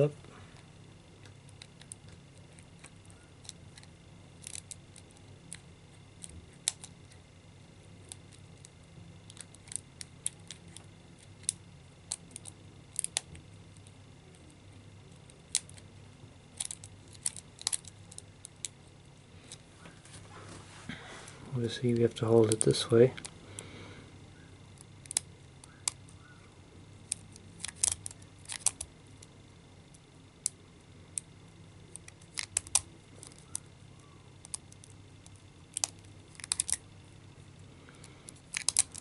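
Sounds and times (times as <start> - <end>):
faint steady hum: 0.0 - 39.0.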